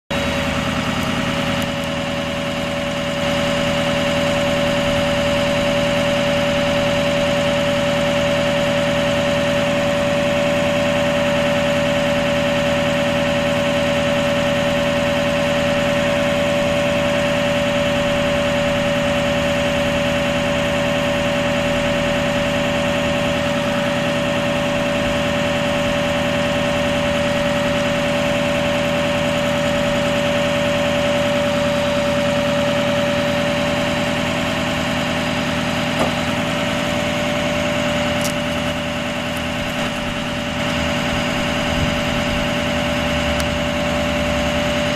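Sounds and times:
diesel engine idling: 0:00.1 - 0:44.9
hydraulic whine: 0:00.1 - 0:44.9.

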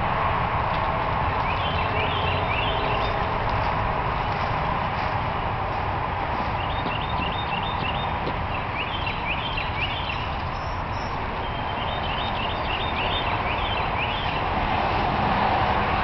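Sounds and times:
steady rushing noise: 0:00.0 - 0:08.6, 0:13.2 - 0:16.0
songbird singing: 0:01.3 - 0:03.7, 0:06.3 - 0:14.6.

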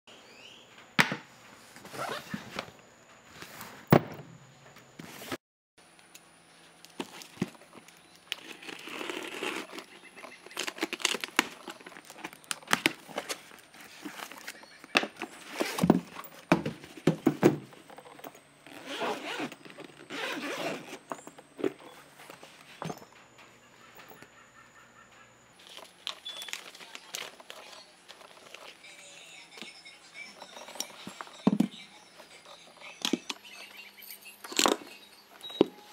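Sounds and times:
packing tape tearing: 0:08.2 - 0:14.5
cardboard flaps rustling and scraping: 0:10.6 - 0:17.9.

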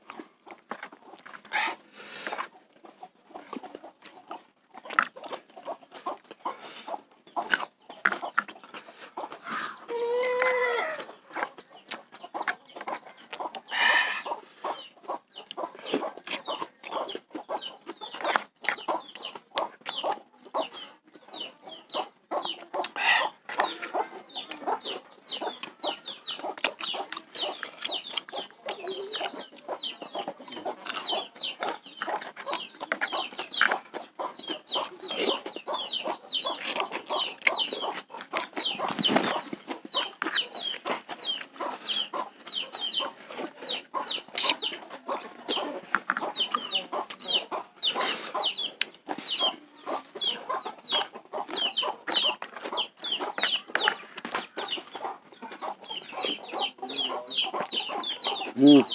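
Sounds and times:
chickens clucking: 0:00.0 - 0:58.9
chicks peeping: 0:00.0 - 0:58.9
chewing clicks: 0:03.3 - 0:06.3, 0:07.3 - 0:09.4, 0:15.4 - 0:20.6, 0:26.4 - 0:29.4, 0:30.6 - 0:43.6, 0:44.2 - 0:48.1.

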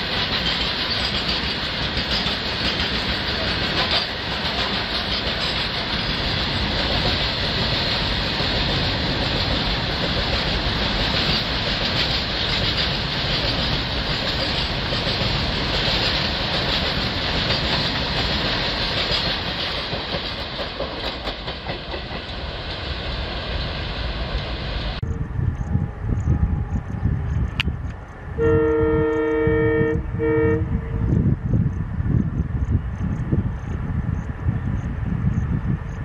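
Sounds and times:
freight wagon wheels clattering on rail: 0:00.0 - 0:25.0.

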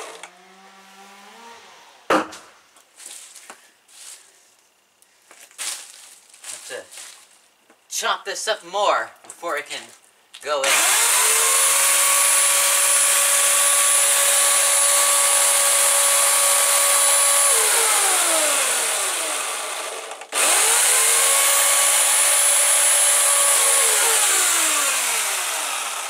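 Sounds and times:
electric chainsaw whine: 0:00.0 - 0:02.3, 0:10.6 - 0:26.0.

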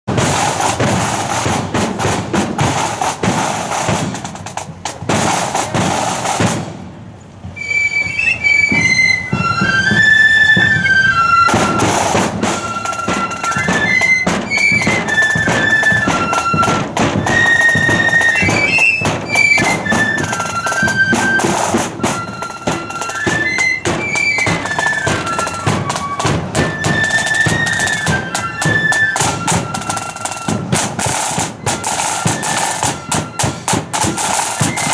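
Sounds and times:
snare and bass drums: 0:00.1 - 0:34.9
flutes playing a melody: 0:07.5 - 0:34.9.

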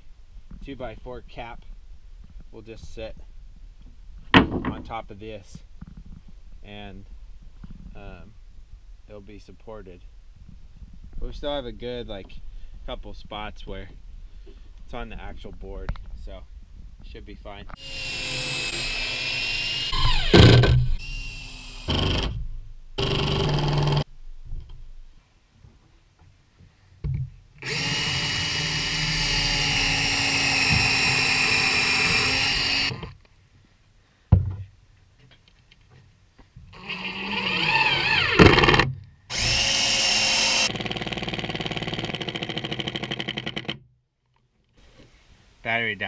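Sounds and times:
cordless drill driving screws: 0:17.8 - 0:22.4, 0:23.0 - 0:24.1, 0:27.6 - 0:33.2, 0:36.7 - 0:43.8.

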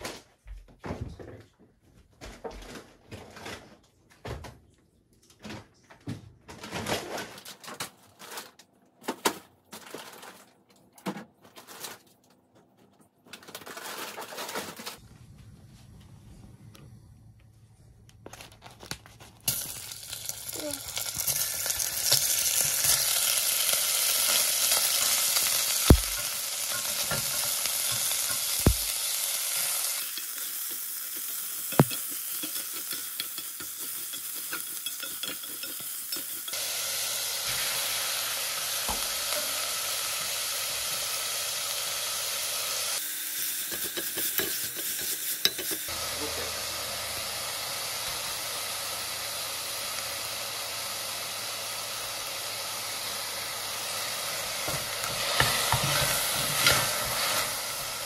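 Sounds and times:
meat sizzling in hot oil: 0:19.5 - 0:58.0.

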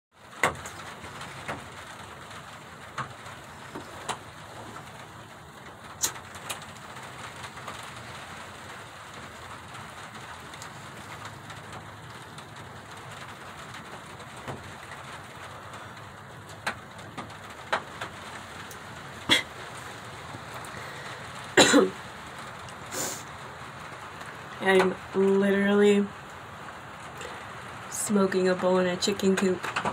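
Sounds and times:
heavy rain on wooden shed: 0:00.1 - 0:29.9
person coughing: 0:19.3 - 0:19.5, 0:21.6 - 0:22.0.

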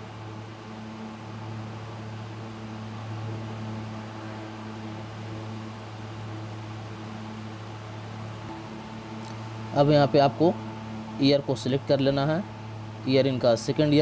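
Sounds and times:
constant hiss: 0:00.0 - 0:14.0
low electrical hum: 0:00.0 - 0:14.0.

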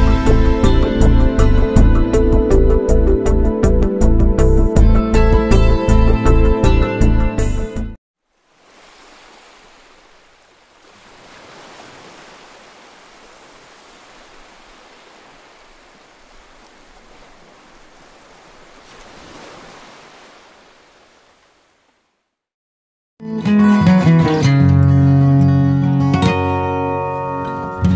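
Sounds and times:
background music: 0:00.0 - 0:08.0.

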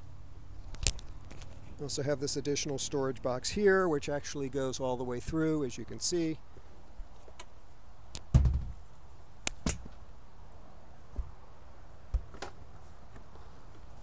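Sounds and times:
dull thud: 0:08.3 - 0:08.8.

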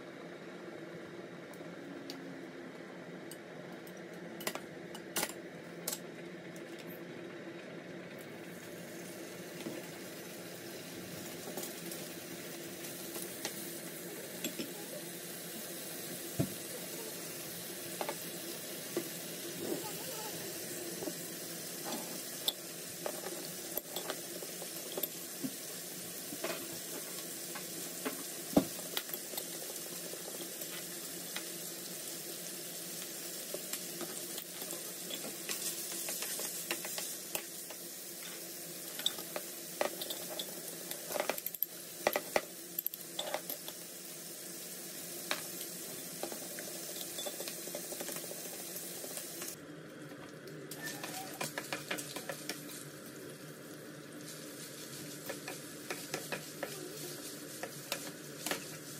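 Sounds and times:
meat sizzling in a frying pan: 0:08.3 - 0:49.6, 0:50.7 - 0:58.9.

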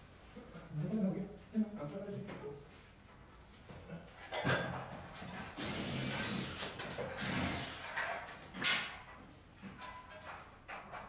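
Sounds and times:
cordless drill motor whirring: 0:05.6 - 0:06.6, 0:07.2 - 0:07.8.

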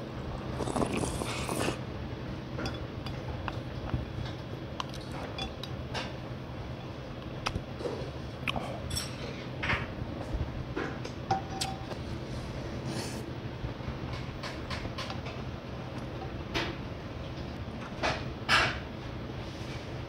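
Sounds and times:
low steady hum: 0:00.0 - 0:20.0
utensils clinking against metal bowl: 0:02.6 - 0:06.2, 0:08.9 - 0:09.8, 0:11.3 - 0:12.0.

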